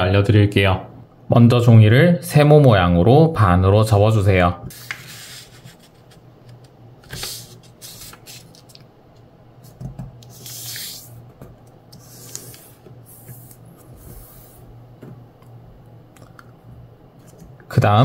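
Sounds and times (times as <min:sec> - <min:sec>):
steady low hum: 0:00.0 - 0:18.0
paper rustling while folded: 0:07.0 - 0:08.8.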